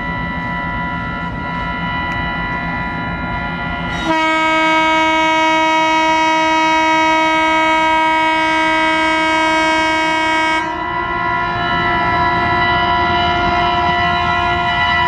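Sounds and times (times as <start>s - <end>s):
locomotive air horn blast: 3.9s - 15.0s.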